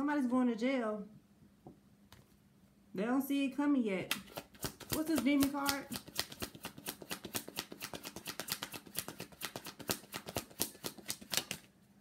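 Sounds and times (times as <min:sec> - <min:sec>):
cards being shuffled: 0:04.1 - 0:11.7.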